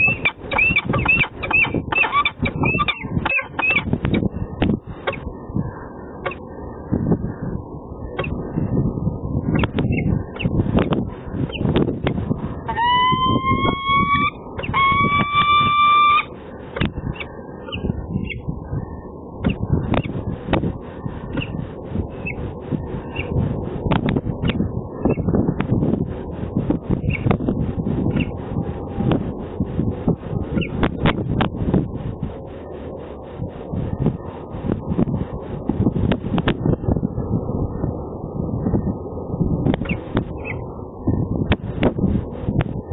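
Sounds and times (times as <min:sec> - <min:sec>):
falcon wailing calls: 0:00.0 - 0:03.9, 0:12.7 - 0:16.3
low rumbling noise: 0:00.0 - 0:42.9.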